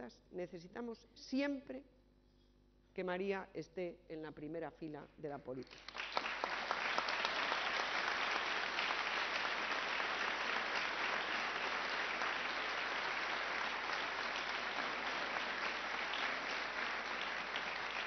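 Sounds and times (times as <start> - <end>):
audience applause: 5.9 - 18.0.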